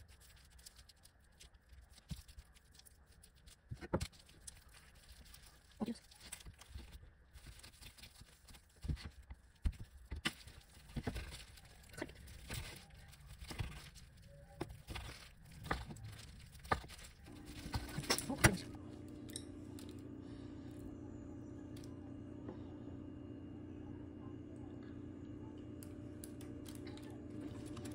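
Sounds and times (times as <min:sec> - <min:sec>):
rolling food in bamboo mat: 0:00.0 - 0:19.1
steady low hum: 0:00.0 - 0:27.9.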